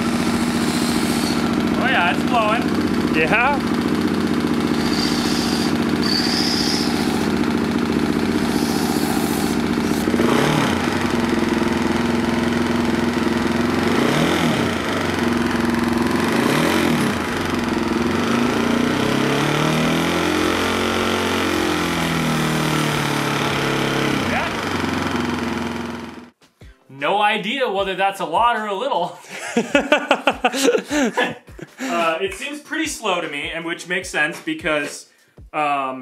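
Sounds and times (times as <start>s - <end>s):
motorcycle engine revving: 0.0s - 26.4s.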